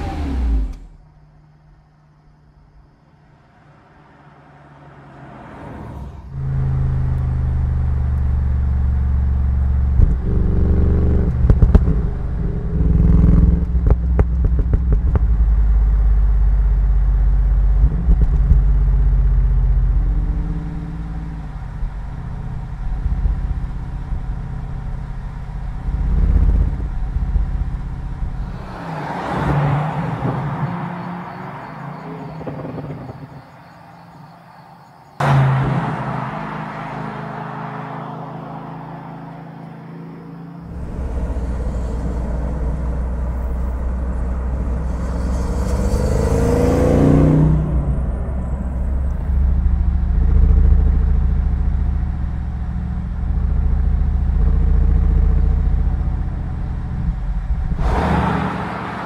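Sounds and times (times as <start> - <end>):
car engine revving: 0.0 - 1.1, 3.6 - 59.0
car passing by: 3.3 - 7.8, 28.4 - 49.4, 57.7 - 59.0
exhaust crackles: 6.3 - 33.7, 40.6 - 59.0.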